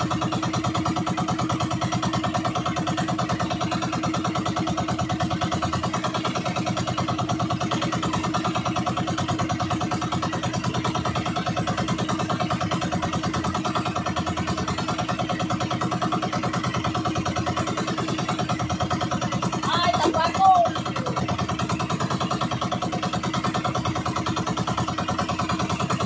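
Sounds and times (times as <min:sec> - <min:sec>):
small boat engine chugging: 0:00.0 - 0:26.0.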